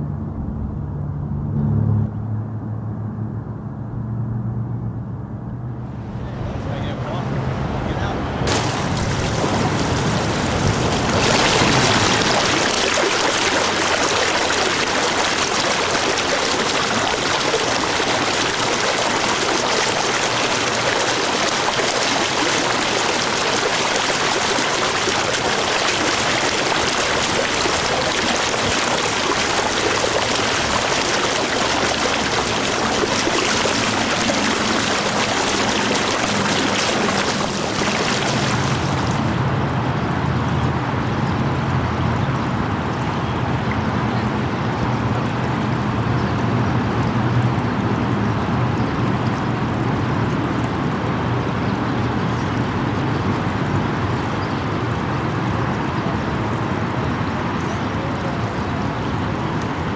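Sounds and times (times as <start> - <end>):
river water rushing: 8.5 - 39.5.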